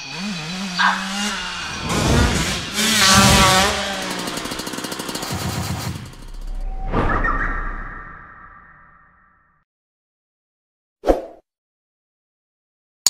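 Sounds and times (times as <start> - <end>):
motorcycle engine revving: 0.0 - 6.7.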